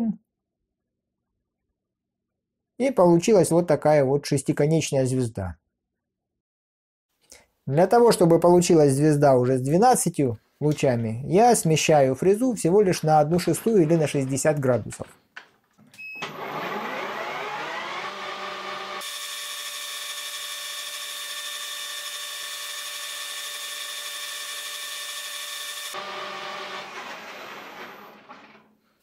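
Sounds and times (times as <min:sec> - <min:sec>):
cutter machining metal: 0:16.3 - 0:28.4
lathe gears whining: 0:16.3 - 0:28.6.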